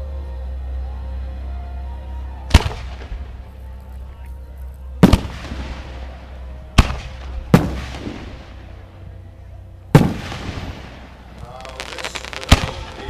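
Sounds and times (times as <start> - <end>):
faint music: 0.0 - 13.0
fireworks bangs: 5.0 - 6.2, 9.9 - 13.0.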